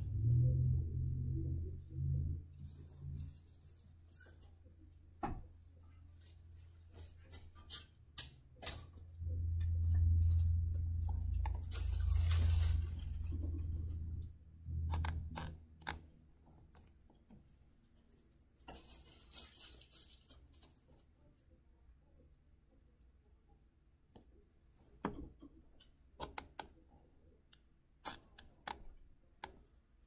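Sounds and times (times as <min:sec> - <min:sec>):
low rumble: 0:00.0 - 0:03.4, 0:09.0 - 0:15.7
keyboard and mouse clicks: 0:14.7 - 0:17.4, 0:26.2 - 0:26.8.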